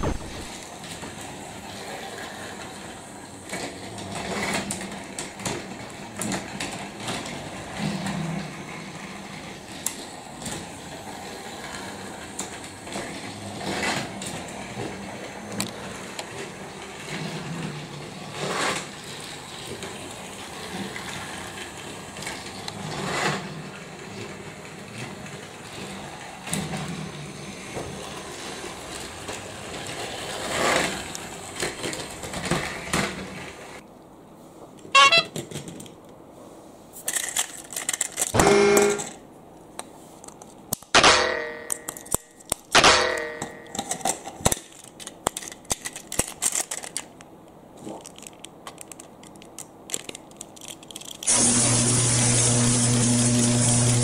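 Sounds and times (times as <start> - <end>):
plastic clacks: 37.1 - 38.4, 43.7 - 51.3
small toy motor whirring: 51.2 - 54.0.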